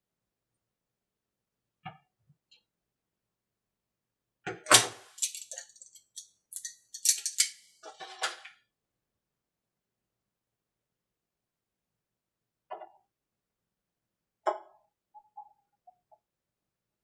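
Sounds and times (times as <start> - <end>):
plastic parts clicking and clattering: 4.7 - 8.4.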